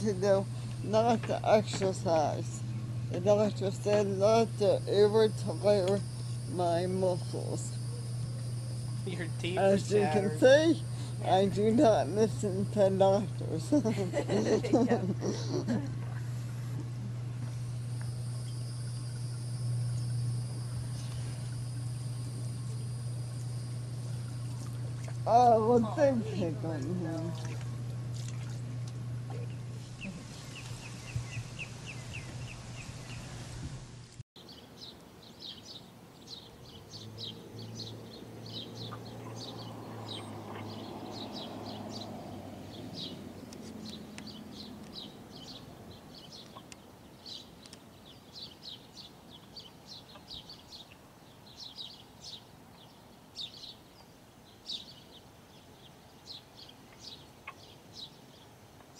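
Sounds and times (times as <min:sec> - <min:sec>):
wild birds chirping: 0:00.0 - 0:33.6, 0:34.4 - 0:58.9
low hum: 0:00.0 - 0:34.2.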